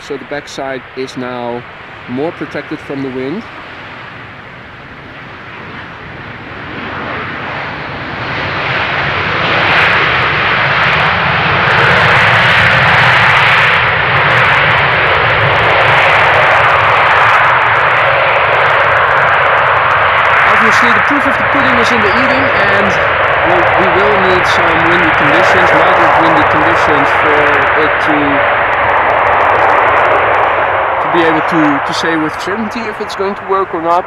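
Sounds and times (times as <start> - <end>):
jet engines on landing: 0.0 - 34.0.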